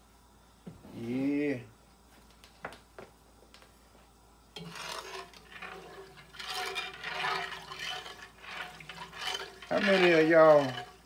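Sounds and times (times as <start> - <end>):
metal spoon scraping pot: 4.6 - 11.0
oil sloshing: 4.6 - 11.0.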